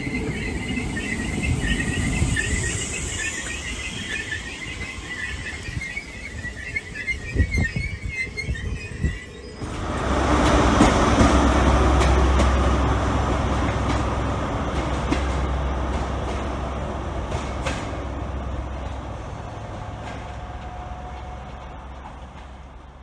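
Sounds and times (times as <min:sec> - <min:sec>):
diesel train engine drone: 0:00.0 - 0:23.0
wheels clicking over rail joints: 0:00.0 - 0:23.0.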